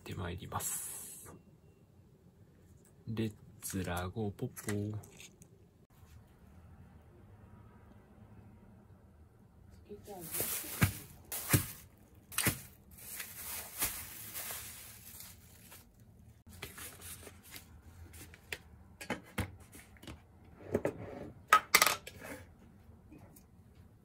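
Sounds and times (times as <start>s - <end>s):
cling film crinkling and tearing: 10.3s - 16.1s
packs knocking on counter: 10.7s - 12.7s.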